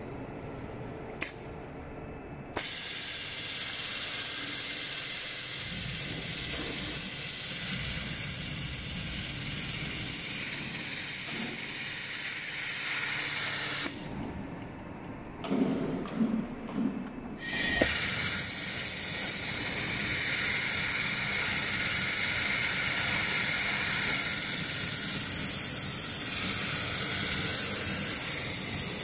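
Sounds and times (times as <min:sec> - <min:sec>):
loud hiss of air: 0:02.6 - 0:14.0, 0:17.4 - 0:29.0.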